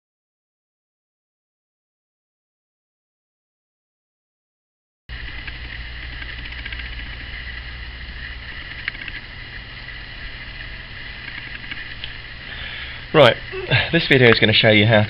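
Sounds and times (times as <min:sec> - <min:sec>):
steady low hum: 0:05.1 - 0:15.0.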